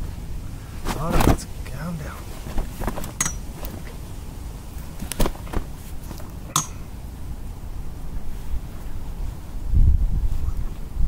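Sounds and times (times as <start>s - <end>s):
low steady rumble: 0.0s - 11.0s
fish flapping on mat: 2.3s - 4.1s, 4.8s - 6.5s.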